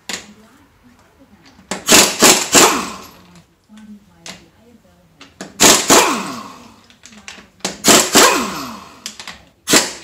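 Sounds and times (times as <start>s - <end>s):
pneumatic impact wrench rattling: 1.7s - 3.3s, 5.4s - 10.0s.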